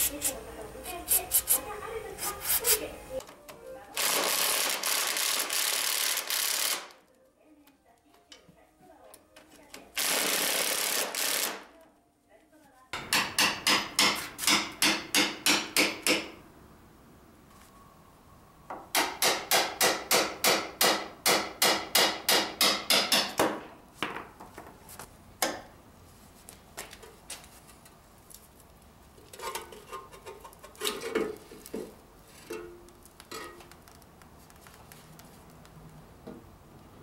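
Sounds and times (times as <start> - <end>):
hammer striking steel: 13.0 - 16.4, 18.9 - 23.6.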